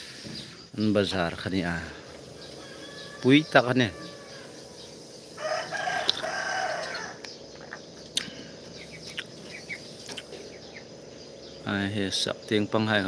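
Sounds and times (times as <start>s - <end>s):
small birds chirping: 0.0s - 13.0s
rooster crowing: 2.2s - 7.2s.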